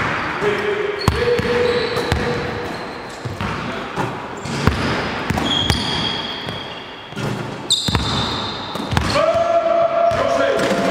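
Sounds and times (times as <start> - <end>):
high-pitched squeaks: 1.0 - 3.3, 5.4 - 8.8
basketballs bouncing on wooden floor: 1.0 - 10.8.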